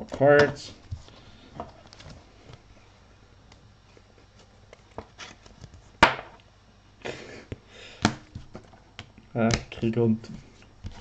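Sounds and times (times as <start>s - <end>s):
handling trading cards and sleeves: 3.5s - 6.3s, 7.5s - 11.0s.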